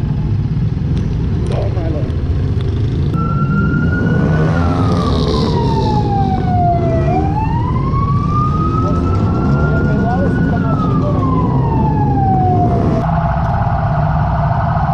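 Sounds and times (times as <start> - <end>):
motorcycle engines running: 0.0 - 13.0
siren wailing: 3.2 - 14.9.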